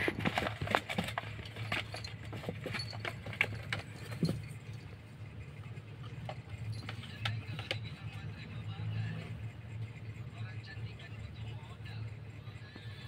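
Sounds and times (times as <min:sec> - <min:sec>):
paws scratching cardboard: 0:00.0 - 0:13.0
steady low hum: 0:00.0 - 0:13.0.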